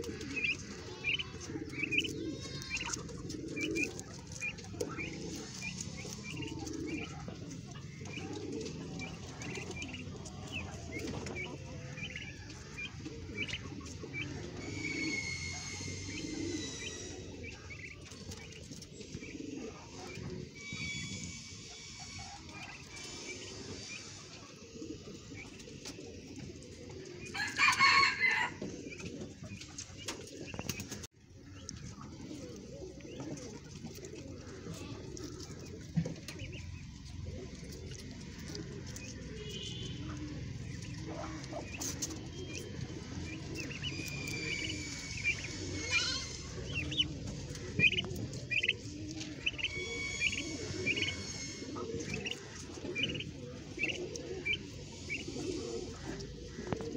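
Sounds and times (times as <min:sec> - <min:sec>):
guinea pigs crunching cucumber: 0:00.0 - 0:15.8, 0:31.6 - 0:51.3
high squeaks and chirps: 0:40.8 - 0:53.2.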